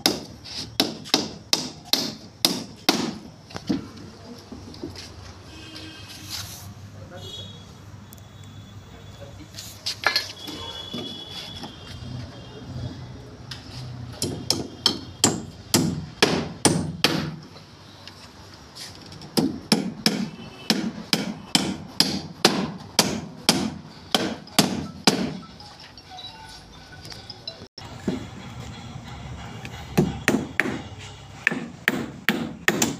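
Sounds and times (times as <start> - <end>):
hammer nailing timber boards: 0.0 - 3.3, 14.2 - 17.4, 19.4 - 25.4, 30.0 - 32.9.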